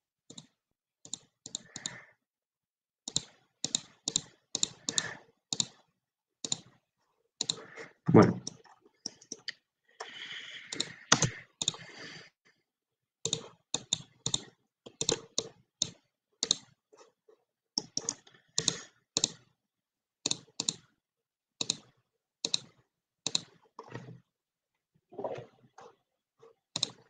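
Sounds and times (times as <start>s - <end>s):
computer mouse clicking: 0.3s - 2.0s, 3.1s - 5.8s, 6.4s - 6.7s, 7.4s - 7.7s, 8.4s - 9.6s, 10.7s - 11.9s, 13.2s - 16.8s, 17.8s - 19.5s, 20.2s - 20.9s, 21.6s - 24.1s, 26.7s - 27.0s.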